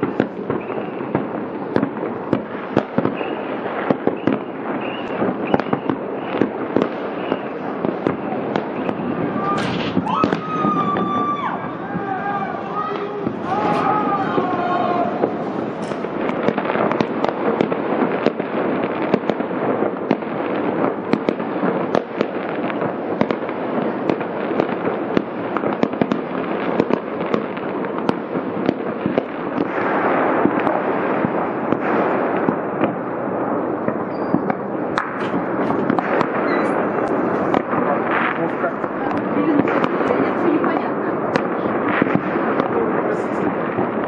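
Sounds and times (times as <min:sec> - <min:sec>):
fireworks and firecrackers bangs: 0:00.0 - 0:44.0
sharp pops: 0:33.9 - 0:40.1.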